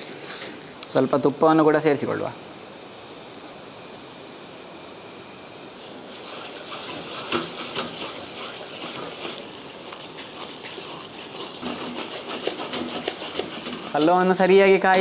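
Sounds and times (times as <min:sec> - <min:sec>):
wooden spatula scraping pot: 0:06.2 - 0:15.0.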